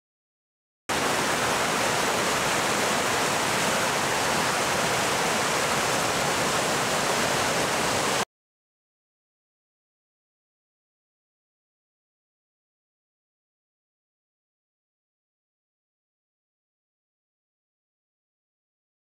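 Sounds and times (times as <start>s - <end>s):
water rushing over rocks: 0.9s - 8.2s.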